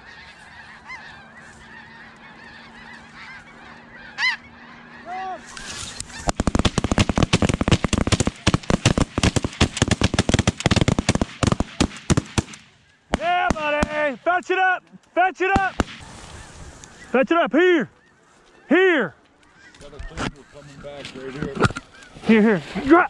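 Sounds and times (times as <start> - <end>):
snow geese honking: 0.0 - 10.1, 12.6 - 23.0
rapid shotgun fire: 6.2 - 14.2, 15.6 - 16.0.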